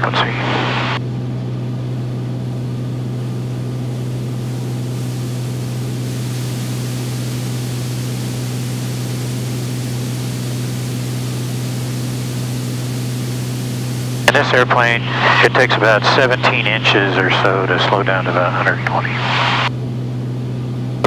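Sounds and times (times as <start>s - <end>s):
propeller plane engine droning: 0.0s - 21.0s
airflow hiss: 4.3s - 14.2s.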